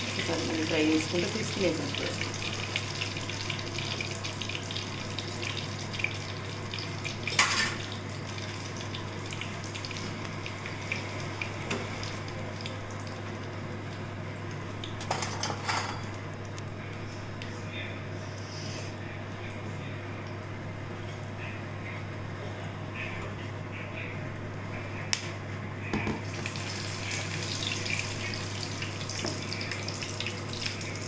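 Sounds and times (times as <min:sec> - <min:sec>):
food sizzling in hot oil: 0:00.0 - 0:13.7, 0:26.2 - 0:31.0.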